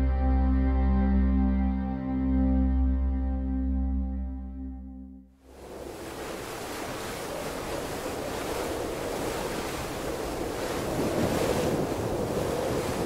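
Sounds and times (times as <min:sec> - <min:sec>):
ocean waves washing: 0:05.4 - 0:13.0
wind: 0:05.4 - 0:13.0.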